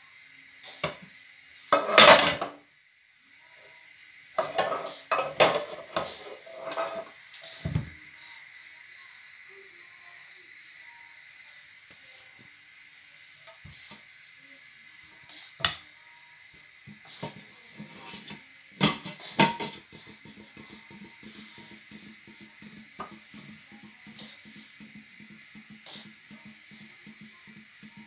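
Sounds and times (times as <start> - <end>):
pots and pans clanking: 1.7 - 2.6, 4.4 - 7.9, 16.9 - 27.3.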